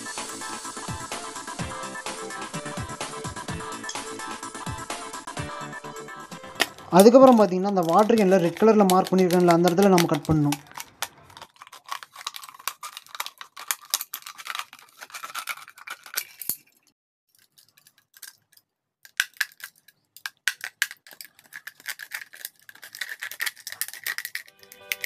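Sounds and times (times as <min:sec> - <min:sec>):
knife cutting plastic bottle: 0:06.6 - 0:16.6.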